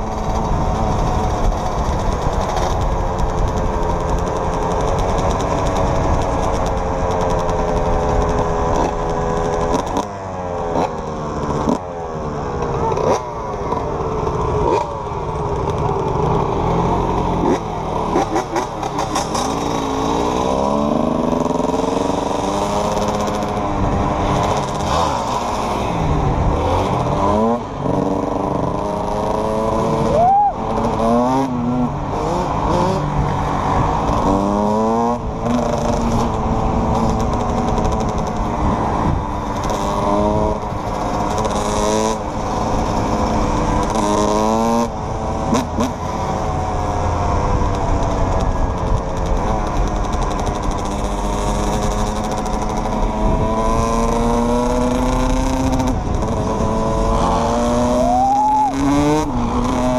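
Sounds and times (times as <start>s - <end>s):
quad and dirt bike engines revving: 0.0s - 59.9s
wind noise on microphone: 25.9s - 45.8s.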